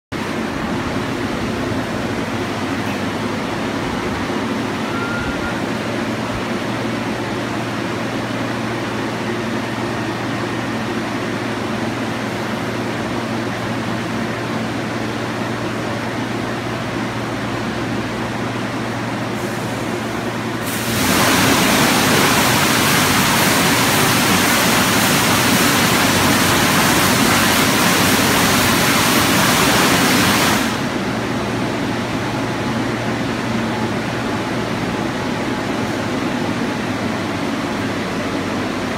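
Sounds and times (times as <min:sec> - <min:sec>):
car wash machine hum: 0:05.9 - 0:38.9
spray jets hissing: 0:20.6 - 0:30.8.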